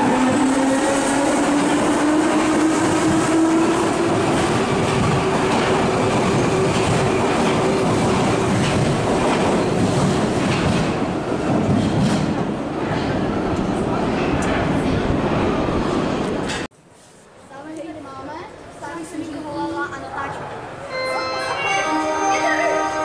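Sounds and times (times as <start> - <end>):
wheels clattering on rails: 0.6 - 14.6.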